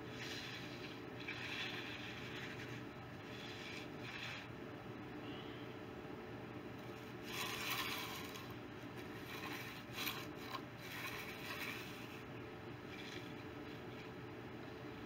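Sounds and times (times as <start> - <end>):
hand tool scraping wet concrete: 0.0 - 4.5, 7.2 - 12.3.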